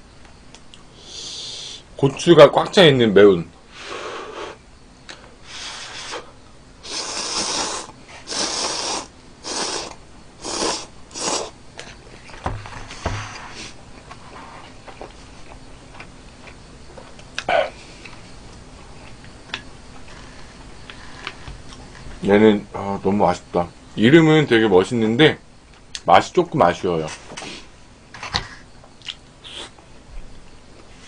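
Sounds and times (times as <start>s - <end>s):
noodles being slurped: 6.8s - 11.5s
chewing with small clicks: 29.0s - 29.2s.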